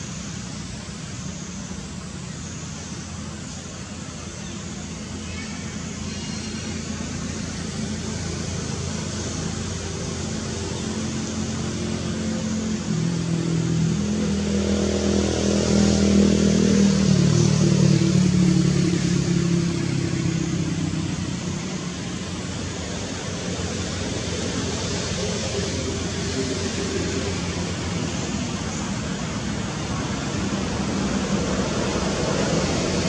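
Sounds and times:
steady outdoor hiss: 0.0s - 33.0s
vehicle engine humming: 0.0s - 33.0s.

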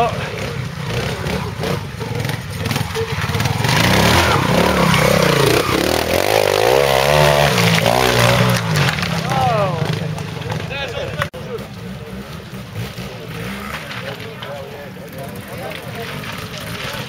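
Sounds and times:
motorcycle engine revving: 0.0s - 17.0s.

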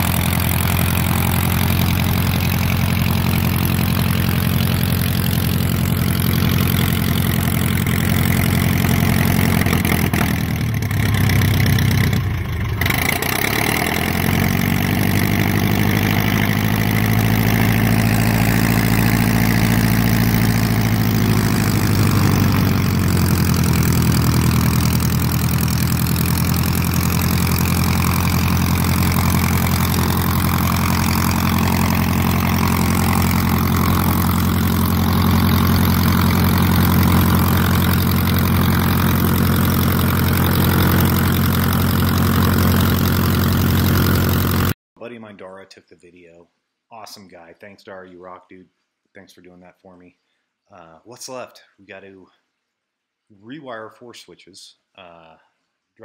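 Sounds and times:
aircraft engine and propeller running: 0.0s - 44.8s.

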